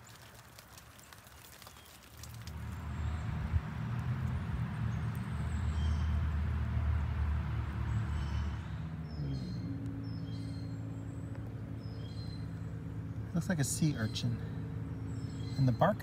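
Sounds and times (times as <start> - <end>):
low mechanical drone: 2.2 - 16.0
faint bird chirps: 7.9 - 16.0.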